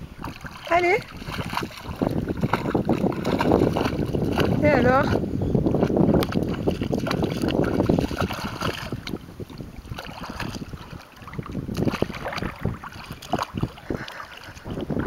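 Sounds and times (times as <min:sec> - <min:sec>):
paws splashing in water: 0:00.0 - 0:15.0
wind rumbling on microphone: 0:00.0 - 0:15.0.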